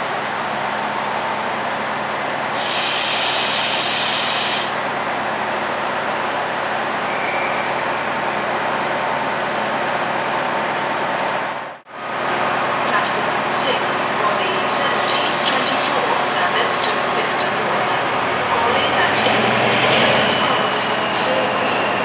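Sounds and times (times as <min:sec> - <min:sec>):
diesel locomotive engine drone: 0:00.0 - 0:22.0
air brakes hissing: 0:02.6 - 0:04.8.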